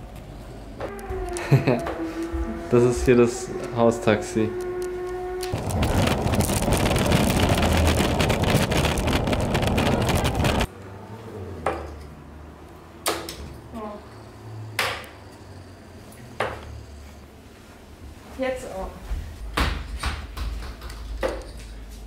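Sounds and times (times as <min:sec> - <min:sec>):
skateboard wheels rolling on hard floor: 0:05.6 - 0:10.7.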